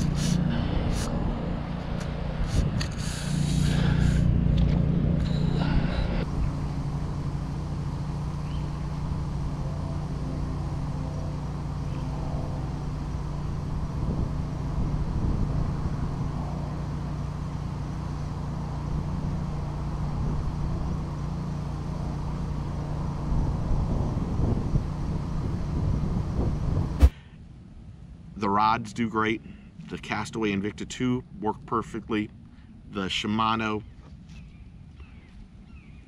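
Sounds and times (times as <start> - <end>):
wind buffeting microphone: 0.0 - 10.0, 11.6 - 16.9, 23.2 - 27.1.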